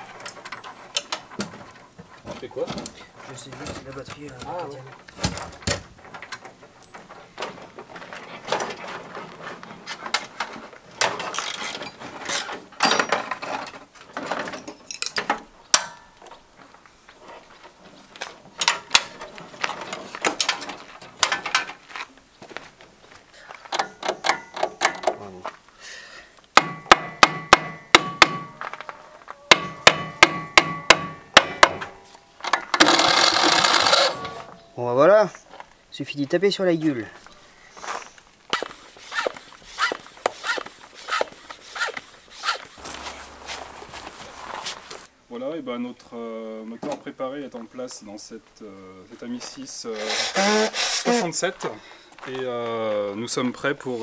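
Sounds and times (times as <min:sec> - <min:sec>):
ringing hammer strikes on metal: 0:29.5 - 0:31.8.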